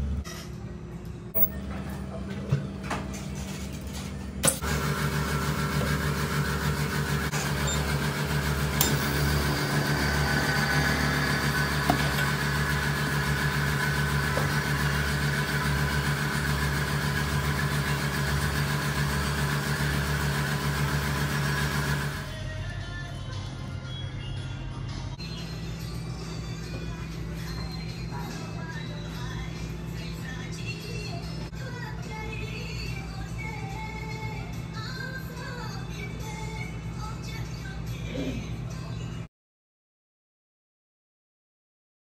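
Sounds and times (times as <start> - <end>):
vacuum pump humming: 4.4 - 22.2.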